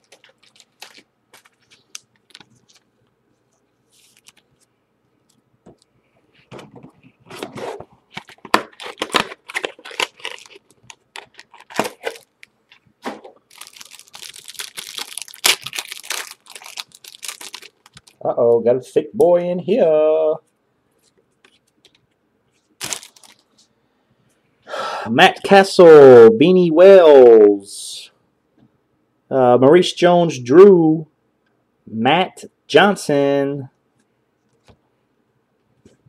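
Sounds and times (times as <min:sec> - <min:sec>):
foil wrapper tearing and crinkling: 0:00.0 - 0:02.8, 0:07.4 - 0:12.4, 0:13.5 - 0:18.2, 0:22.8 - 0:23.4.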